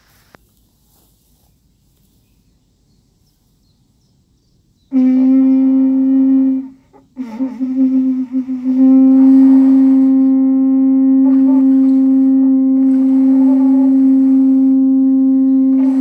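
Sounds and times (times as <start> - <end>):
conch shell horn low note: 4.9 - 16.0.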